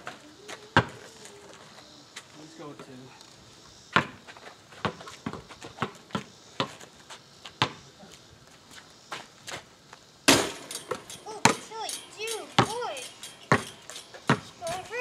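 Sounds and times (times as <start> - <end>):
basketball bouncing on asphalt: 0.8 - 1.0, 3.9 - 7.8, 10.3 - 11.7, 12.5 - 12.8, 13.5 - 15.0
ball striking backboard and rim: 10.3 - 14.8
footsteps: 10.6 - 15.0.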